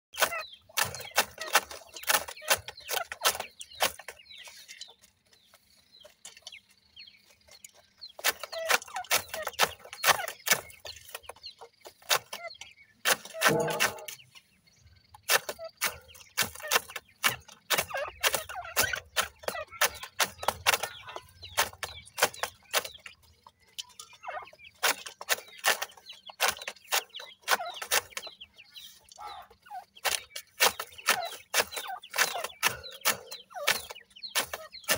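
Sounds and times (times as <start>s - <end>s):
francolins clucking and chirping: 0.2s - 34.9s
low bird call: 12.3s - 16.8s.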